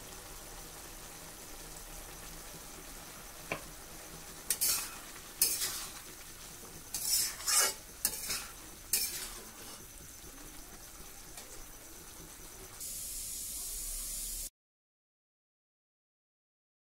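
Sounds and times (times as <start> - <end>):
loud steady hiss: 0.0 - 14.5
quiet sizzle: 0.0 - 14.5
metal spatula scraping wok: 4.3 - 10.2.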